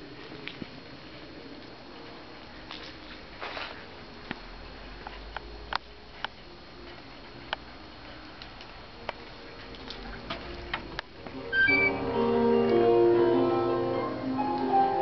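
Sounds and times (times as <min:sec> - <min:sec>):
music with held piano-like notes: 0:11.3 - 0:15.0.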